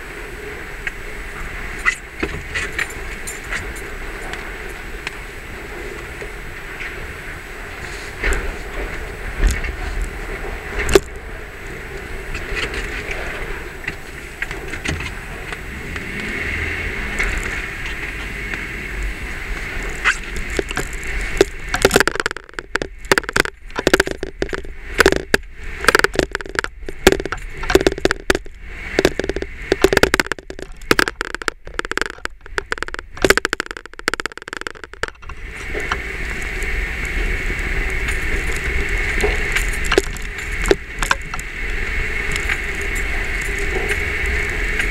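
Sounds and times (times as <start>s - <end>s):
engine and road hum: 0.0s - 44.9s
camera tapping against windshield: 20.6s - 35.3s.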